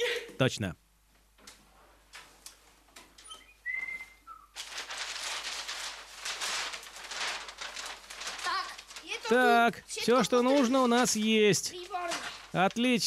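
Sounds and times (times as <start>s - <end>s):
paper rustling and crinkling: 1.5s - 3.2s, 3.8s - 13.0s
person whistling: 3.4s - 4.5s.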